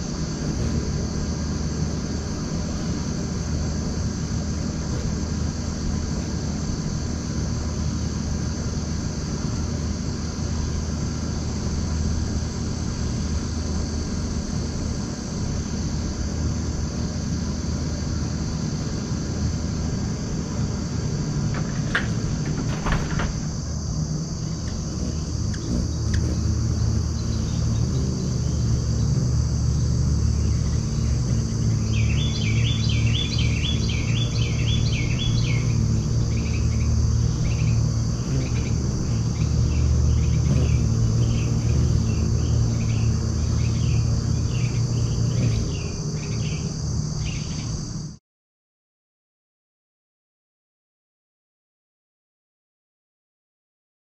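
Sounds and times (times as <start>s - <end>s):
steady low rumble: 0.0s - 46.9s
high insect trill: 0.0s - 48.2s
hummingbird squeaks: 24.4s - 46.7s
descending bird chirps: 29.8s - 46.7s.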